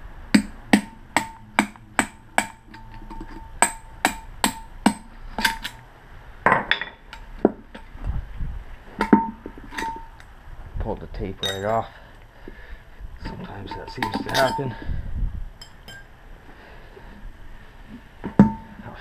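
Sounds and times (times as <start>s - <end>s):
hammer striking metal rod: 0.3s - 5.8s.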